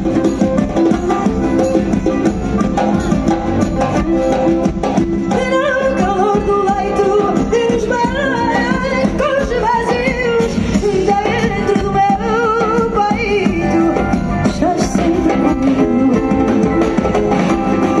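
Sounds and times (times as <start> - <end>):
guitars playing: 0.0 - 6.8
drum kit: 0.0 - 18.0
woman singing with vibrato: 5.2 - 18.0.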